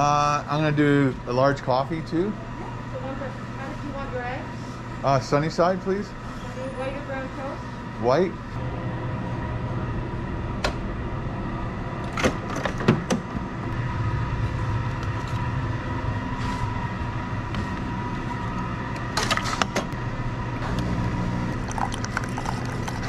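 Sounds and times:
steady hum with high whine: 0:00.0 - 0:23.0.

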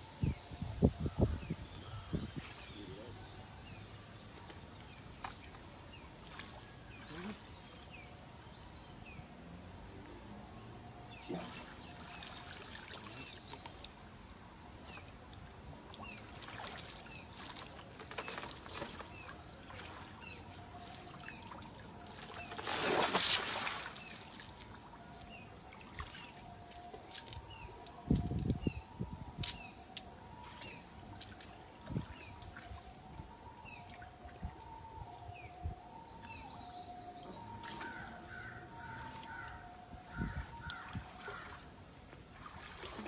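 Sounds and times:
water splashing and trickling: 0:00.2 - 0:43.0.

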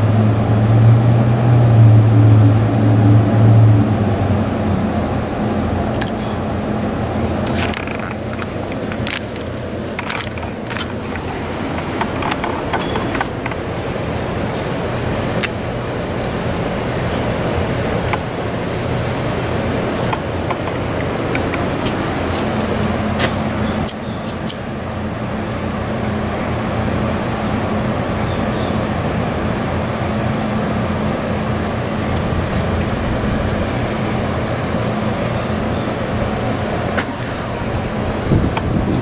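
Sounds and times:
city traffic: 0:00.0 - 0:39.0
low steady hum: 0:00.0 - 0:39.0
wind rushing against microphone: 0:31.4 - 0:39.0.

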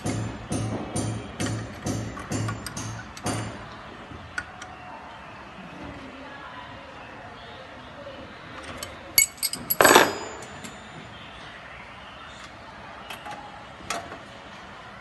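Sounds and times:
metallic rattle: 0:09.2 - 0:10.8
metal clinks and clatter: 0:09.2 - 0:10.9.

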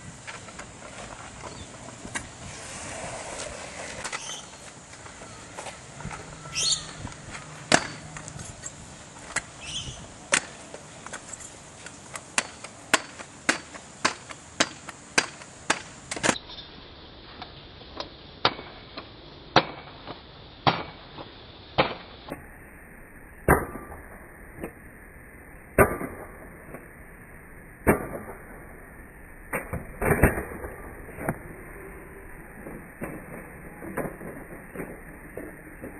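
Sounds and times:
scooter landing on asphalt: 0:00.2 - 0:08.4.

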